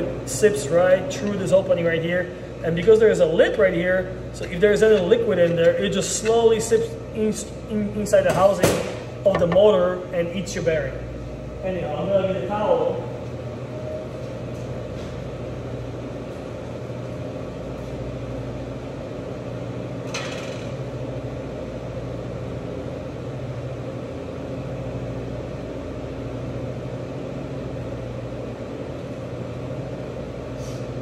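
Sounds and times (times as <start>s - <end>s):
kitchen equipment hum: 0.0s - 31.0s.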